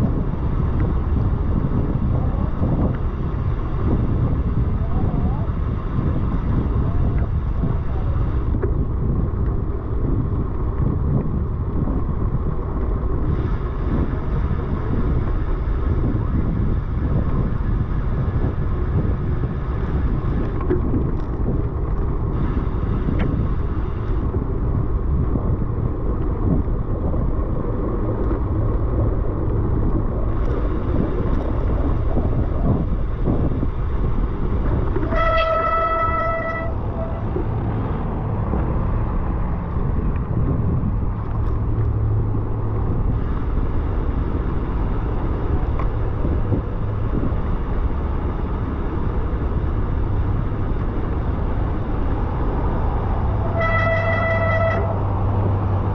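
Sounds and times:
wind and road rumble: 0:00.0 - 0:55.9
vehicle horn toot: 0:35.0 - 0:37.2, 0:53.4 - 0:55.0.

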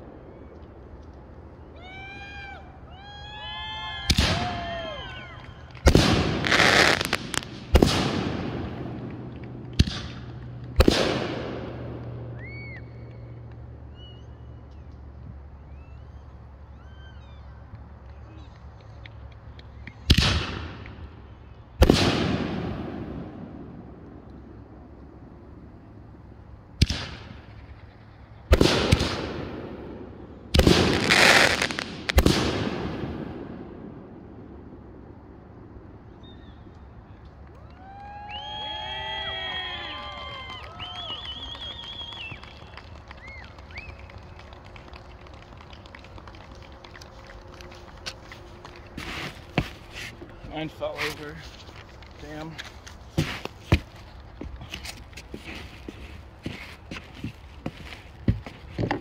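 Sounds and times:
firework crackling: 0:00.0 - 0:12.9, 0:21.8 - 0:24.9, 0:26.1 - 0:35.4, 0:39.4 - 0:59.0
firework bangs: 0:04.0 - 0:12.8, 0:20.0 - 0:21.2, 0:21.8 - 0:24.5, 0:26.8 - 0:34.8, 0:52.2 - 0:54.6.

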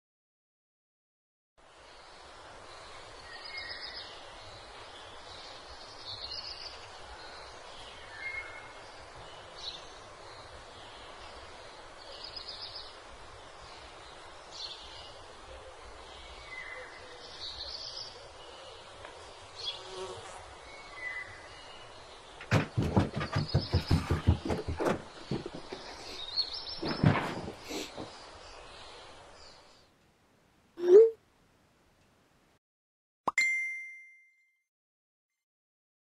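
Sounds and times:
steady hiss: 0:01.6 - 0:22.4.

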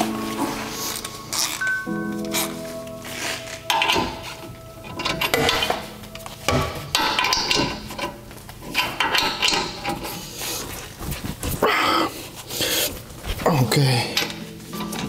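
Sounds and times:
metal tools clinking and scraping: 0:00.0 - 0:10.7, 0:13.7 - 0:15.0.

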